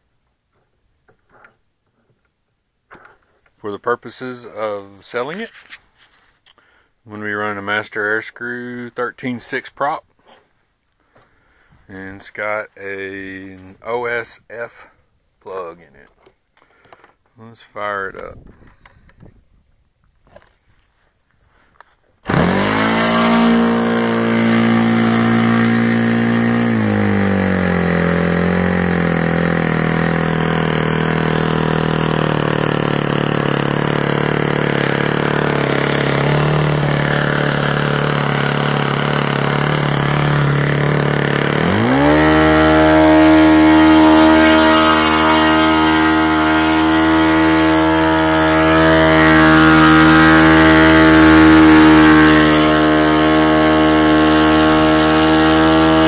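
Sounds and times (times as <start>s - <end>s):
model airplane engine running: 22.3s - 56.0s.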